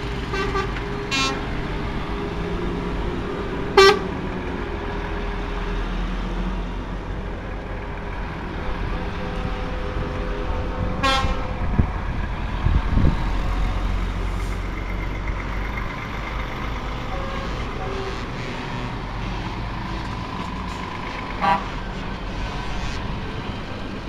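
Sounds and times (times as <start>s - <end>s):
truck diesel engines rumbling: 0.0s - 24.0s.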